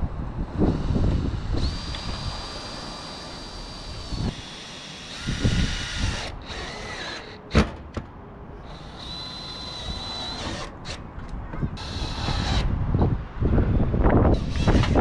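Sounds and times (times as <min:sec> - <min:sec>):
wind rumble on microphone: 0:00.0 - 0:02.6, 0:05.2 - 0:06.3, 0:11.2 - 0:15.0
cordless drill motor whine: 0:00.7 - 0:07.4, 0:08.6 - 0:10.7, 0:11.8 - 0:12.7, 0:14.4 - 0:15.0.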